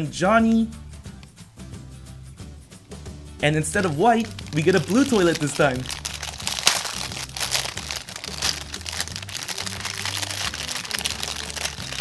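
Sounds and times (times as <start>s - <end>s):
background music: 0.0s - 12.0s
plastic bag crinkling: 4.2s - 12.0s.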